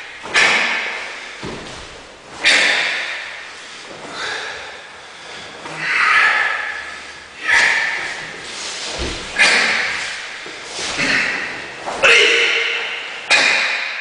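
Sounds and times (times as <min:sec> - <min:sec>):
sharp forceful exhalations: 0:02.4 - 0:11.6.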